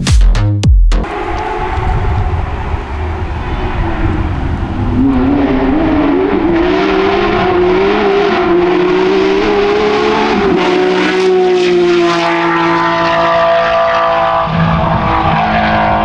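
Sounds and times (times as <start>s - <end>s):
low rumble: 1.0s - 7.7s
rally car engine approaching: 1.0s - 16.0s.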